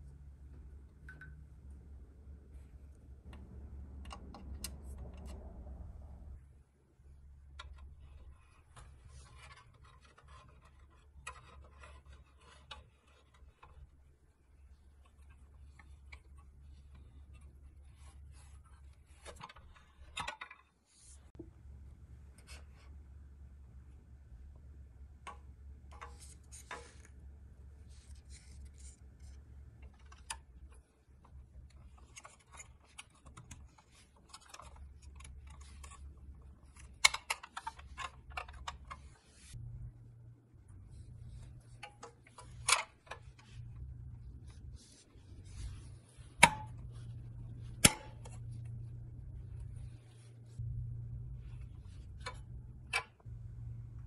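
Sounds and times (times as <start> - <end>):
low steady hum: 0.0 - 54.0
small clicks and taps on metal toy: 29.8 - 39.1.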